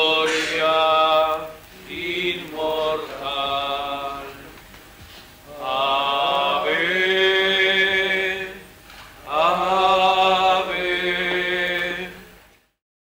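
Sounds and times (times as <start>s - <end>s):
voices singing a hymn: 0.0s - 12.5s.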